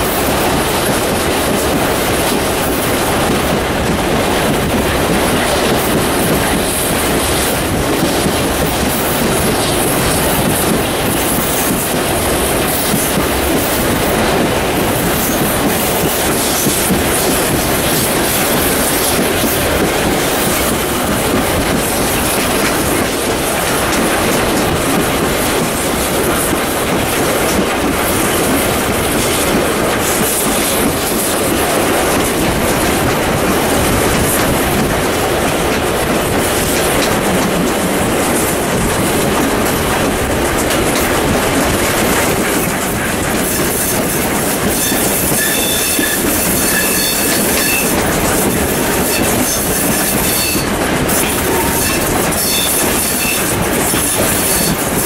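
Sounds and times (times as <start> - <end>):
steam locomotive exhaust rushing: 0.0 - 55.0
train wheels clattering on rails: 0.0 - 55.0
wind across microphone: 0.0 - 55.0
wheel flange squeal: 44.8 - 47.9, 51.5 - 53.4.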